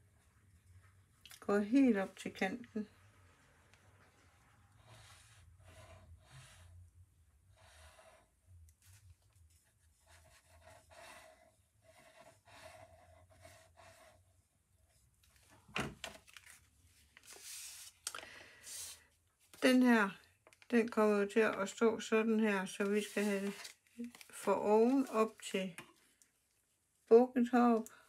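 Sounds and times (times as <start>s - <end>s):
card stock rustling: 16.0s - 18.1s, 22.8s - 25.5s.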